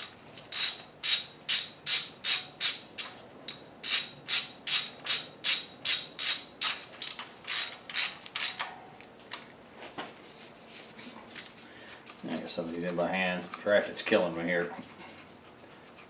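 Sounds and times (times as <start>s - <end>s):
socket ratchet clicking: 0.0s - 8.7s.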